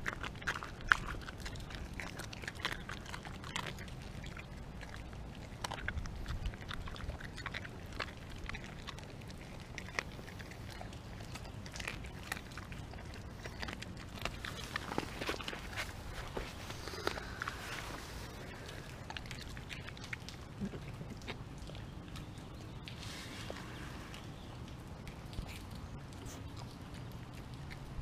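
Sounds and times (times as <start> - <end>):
dog chewing bones: 0.0 - 28.0.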